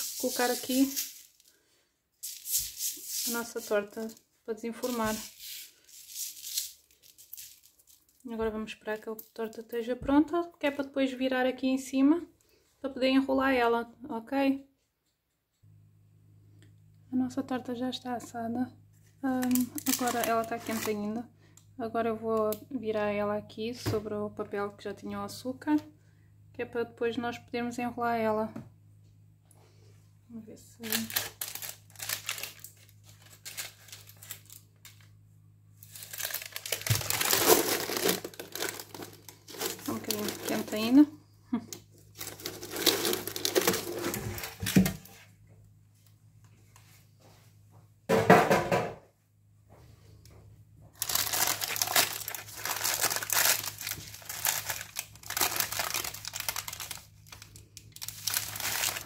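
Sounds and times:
baking paper crinkling: 0.0s - 9.8s, 19.2s - 21.2s, 30.8s - 35.2s, 35.8s - 41.1s, 42.0s - 45.3s, 50.9s - 59.0s.

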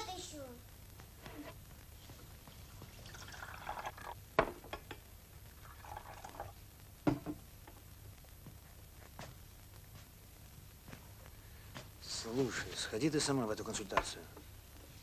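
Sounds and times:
tea pouring into a cup: 2.7s - 4.2s, 5.6s - 6.6s.

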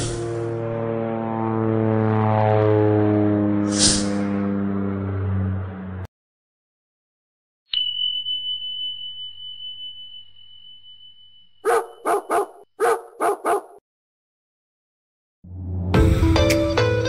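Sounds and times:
high steady tone: 7.7s - 12.5s
dog barking: 11.6s - 13.8s.

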